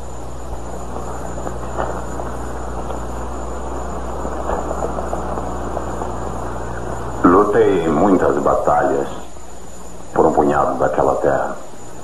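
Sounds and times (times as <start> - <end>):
low hum and hiss: 0.0 - 12.0.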